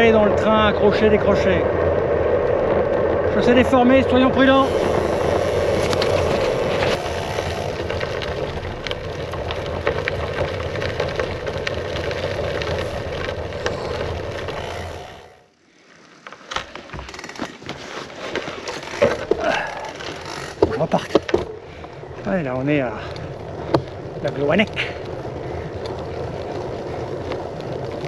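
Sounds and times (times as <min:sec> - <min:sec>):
bike tyre rumble on rough road: 0:00.0 - 0:28.0
small knocks and rattles: 0:16.4 - 0:21.6.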